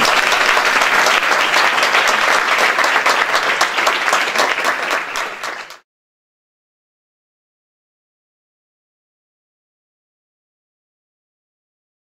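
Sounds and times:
audience applauding: 0.0s - 5.8s.

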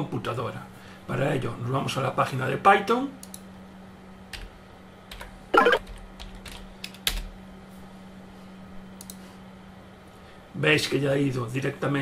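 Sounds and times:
faint steady hum: 0.0s - 12.0s
typing on a keyboard: 5.1s - 7.3s.

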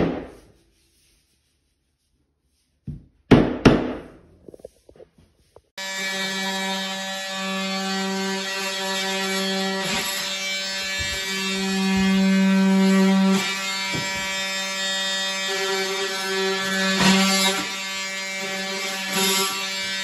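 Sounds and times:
rubber mallet striking floor plank: 2.9s - 4.2s.

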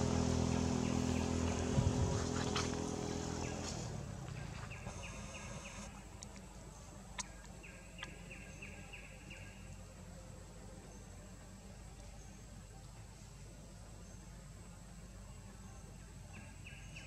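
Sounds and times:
bird chirping: 0.0s - 6.0s, 6.7s - 9.8s
low motor hum: 0.0s - 12.7s.

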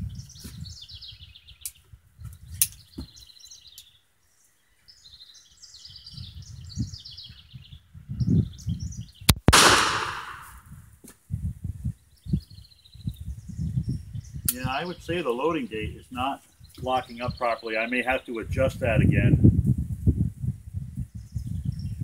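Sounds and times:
birds chirping: 2.7s - 10.6s, 12.4s - 18.6s
revolver gunshot with echo: 9.4s - 10.6s.

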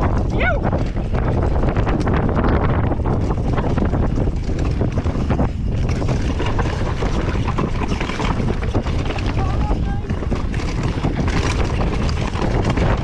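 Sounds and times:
bike clattering: 0.0s - 13.0s
wind rushing over microphone: 0.0s - 13.0s.

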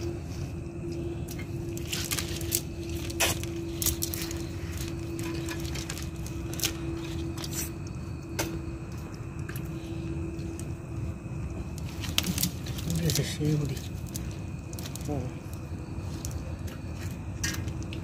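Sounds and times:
low hum: 0.0s - 18.0s
rustling mesh: 1.2s - 7.7s
net sinkers clicking and clinking: 1.3s - 9.6s.

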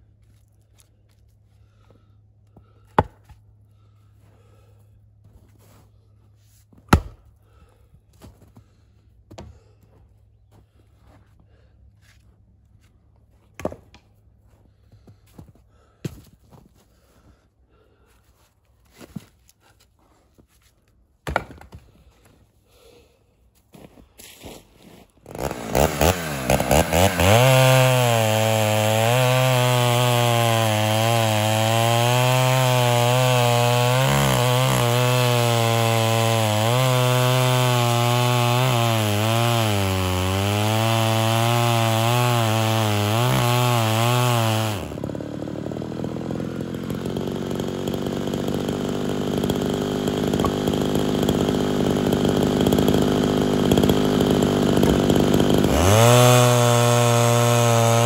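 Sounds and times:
chainsaw revving and cutting wood: 2.6s - 3.4s, 24.2s - 58.0s.

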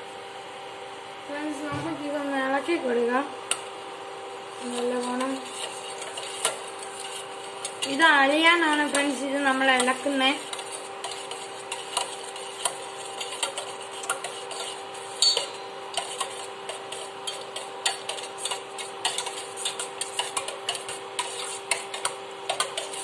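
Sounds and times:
steady hum: 0.0s - 23.0s
ladle scraping a steel pot: 4.6s - 23.0s.

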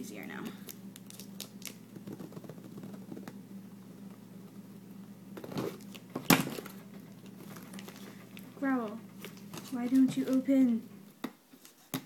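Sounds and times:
faint steady hum: 0.0s - 12.0s
packaging being handled: 5.4s - 10.5s.

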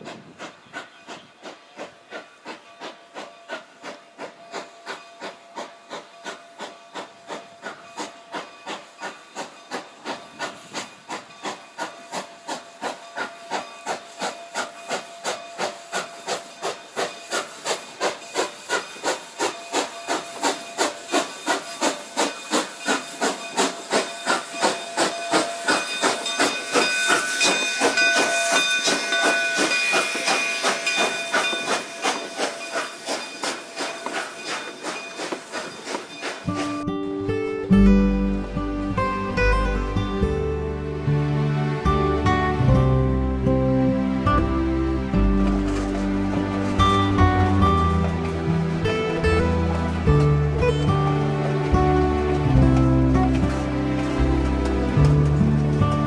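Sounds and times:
steam hiss: 0.0s - 36.9s
steam locomotive chuffing: 0.0s - 56.0s.

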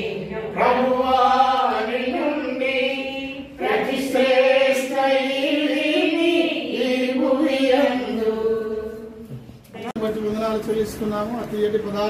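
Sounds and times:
group of voices singing: 0.0s - 9.4s.

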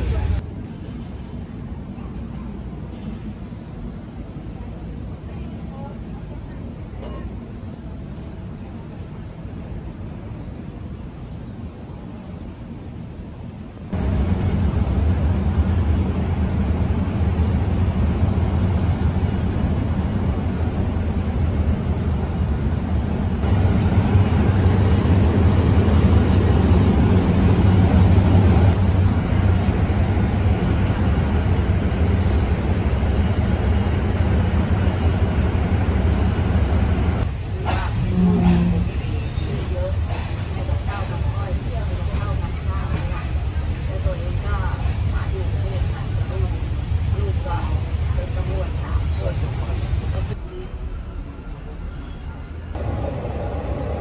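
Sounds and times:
diesel train engine humming: 10.6s - 50.4s, 52.8s - 54.0s.

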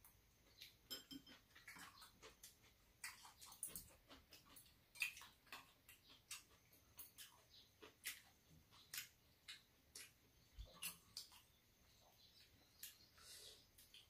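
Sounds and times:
chopsticks and spoons clicking on bowls: 0.6s - 11.4s
mouth smacks and chewing: 1.4s - 14.0s.

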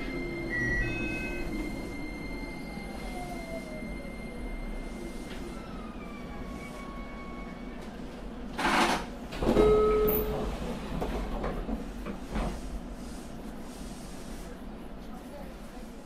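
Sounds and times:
door tone: 0.0s - 4.4s, 9.6s - 10.4s
electric train motor slowing: 0.0s - 8.0s
train doors sliding open: 4.9s - 12.9s.

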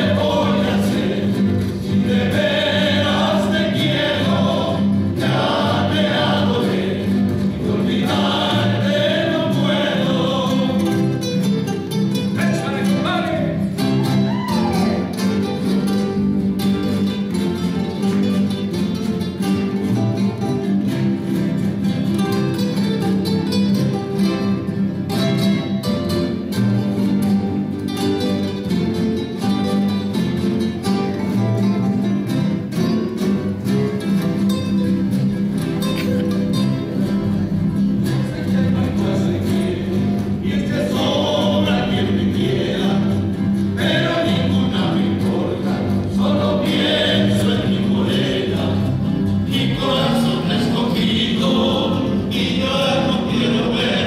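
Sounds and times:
men singing: 0.0s - 11.5s, 12.4s - 15.4s, 38.0s - 54.0s
acoustic guitars ensemble playing: 0.0s - 54.0s.

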